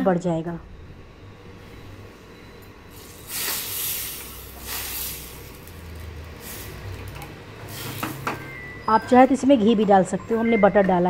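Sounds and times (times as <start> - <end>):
hot butter sizzling in dal: 3.0 - 8.3.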